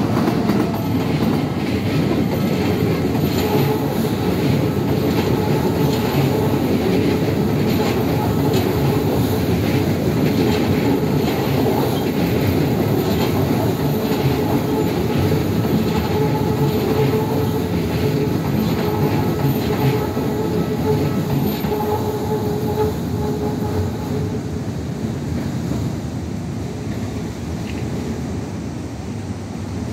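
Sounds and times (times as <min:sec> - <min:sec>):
train wheels clattering on bridge: 0:00.0 - 0:24.4.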